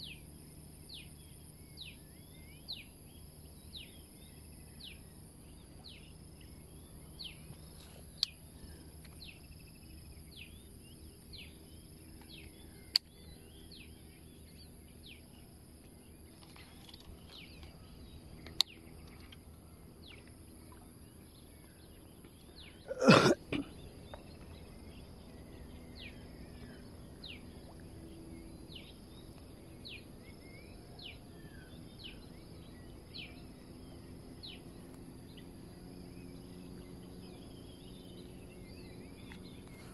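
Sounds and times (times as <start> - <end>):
high insect drone: 0.0 - 39.9.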